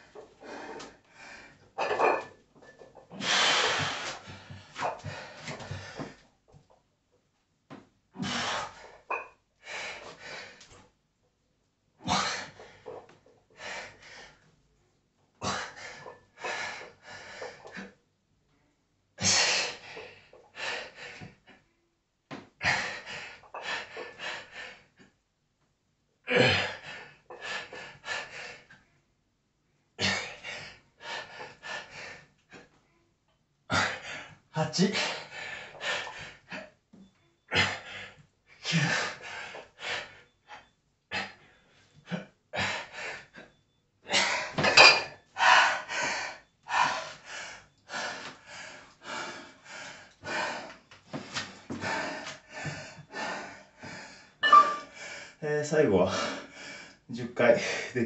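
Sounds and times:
man breathing heavily under strain: 0.2 - 6.2, 45.4 - 55.4, 56.0 - 57.9.

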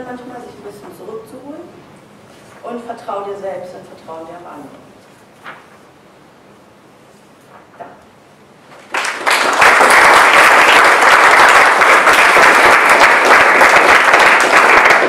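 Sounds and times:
audience applauding: 8.8 - 15.0.

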